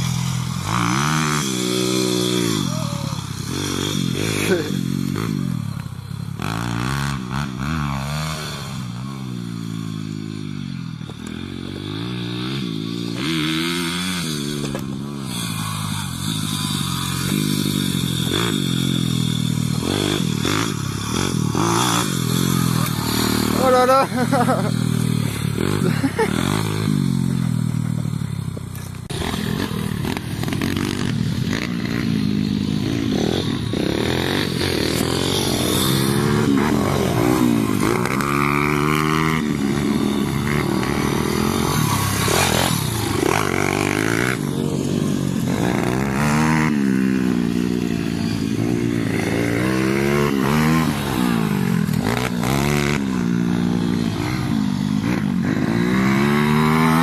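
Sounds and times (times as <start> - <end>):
pit bike engines revving: 0.0 - 57.0.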